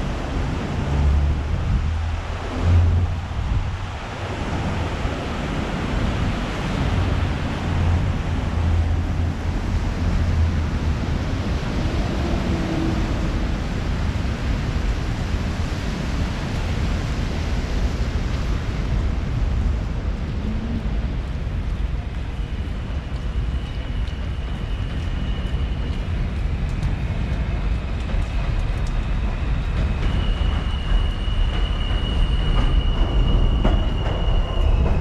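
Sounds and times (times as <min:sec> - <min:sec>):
wind blowing across microphone: 0:00.0 - 0:35.0.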